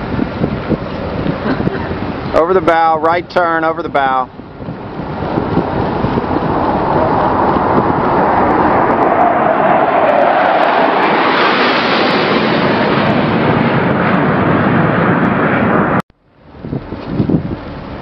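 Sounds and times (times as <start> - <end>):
jet aircraft flying past: 4.2 - 16.9.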